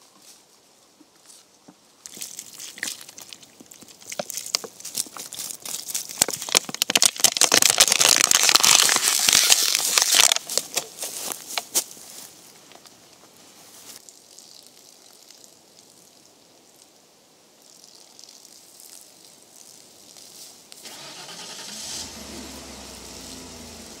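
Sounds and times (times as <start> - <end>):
plastic bottle crinkling: 2.0 - 12.0.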